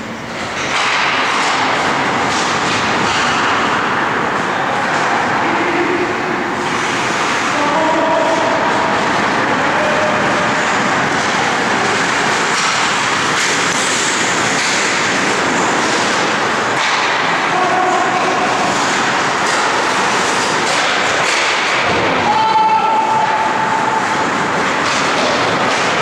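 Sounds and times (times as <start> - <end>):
hockey sticks clattering: 0.3 - 5.1, 8.2 - 26.0
skate blades scraping ice: 6.7 - 22.3, 23.0 - 26.0.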